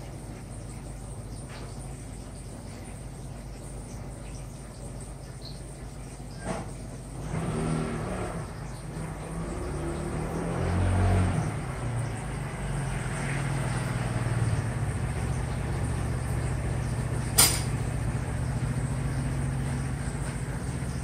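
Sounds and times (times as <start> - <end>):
aquarium air pump humming: 0.0 - 21.0.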